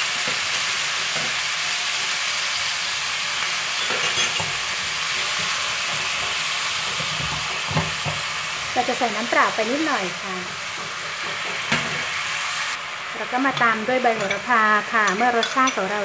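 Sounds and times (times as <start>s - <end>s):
meat sizzling in oil: 0.0s - 16.0s
spatula stirring and scraping: 10.4s - 12.4s.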